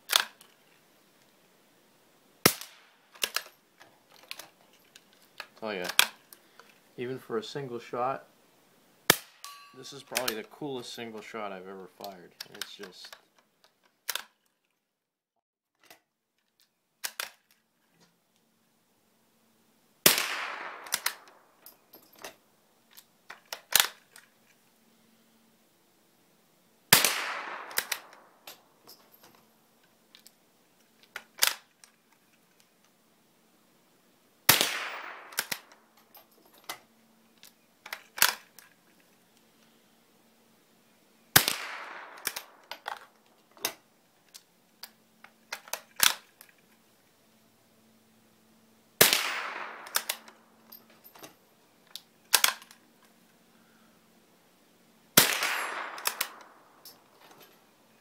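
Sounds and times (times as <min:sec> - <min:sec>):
metallic clicks of rifle bolt: 0:00.1 - 0:00.8, 0:02.4 - 0:06.8, 0:09.2 - 0:10.5, 0:12.0 - 0:14.8, 0:15.8 - 0:18.5, 0:20.2 - 0:24.6, 0:27.2 - 0:33.0, 0:34.5 - 0:39.8, 0:41.4 - 0:46.8, 0:49.2 - 0:53.2, 0:55.3 - 0:57.7
rifle shot crack: 0:02.4 - 0:03.4, 0:09.1 - 0:09.4, 0:20.0 - 0:21.5, 0:26.9 - 0:28.5, 0:34.5 - 0:35.8, 0:41.3 - 0:42.7, 0:49.0 - 0:50.3, 0:55.2 - 0:56.8.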